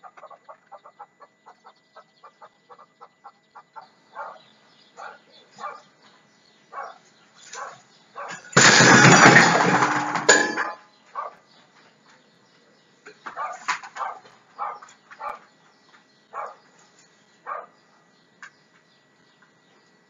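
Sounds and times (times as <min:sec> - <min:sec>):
dog barking: 0:03.8 - 0:05.9, 0:06.7 - 0:08.5, 0:10.6 - 0:11.5, 0:13.3 - 0:15.5, 0:16.3 - 0:16.7, 0:17.4 - 0:17.8
metal clattering crash: 0:08.4 - 0:10.8.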